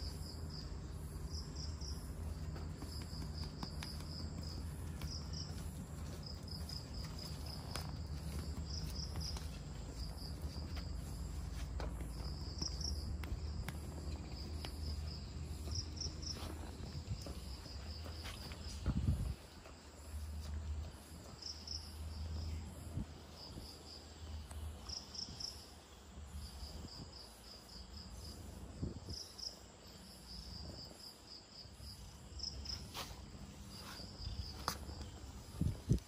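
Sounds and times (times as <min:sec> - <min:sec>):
steady low rumble: 0:00.0 - 0:23.6
crickets chirping: 0:00.0 - 0:36.0.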